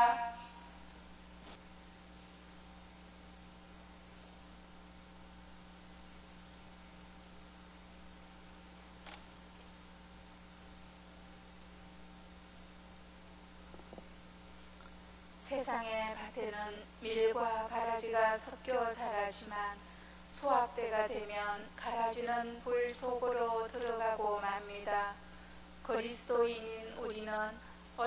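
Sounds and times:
low electrical hum with hiss: 0.0s - 28.0s.

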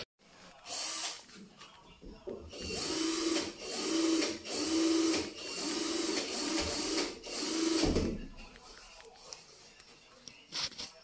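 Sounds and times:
power tool motor whine: 2.6s - 7.8s.

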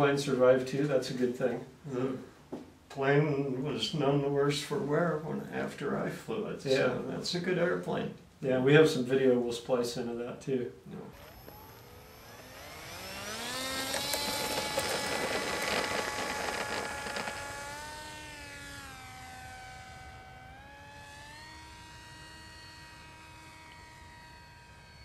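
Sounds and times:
model plane motor whine: 11.0s - 25.0s.

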